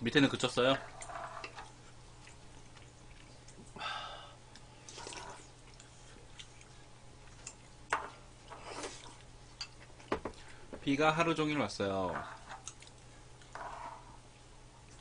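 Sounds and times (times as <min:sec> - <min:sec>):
chewing: 0:01.6 - 0:03.8, 0:04.5 - 0:10.6, 0:12.6 - 0:13.5
sips and slurps: 0:04.9 - 0:06.5.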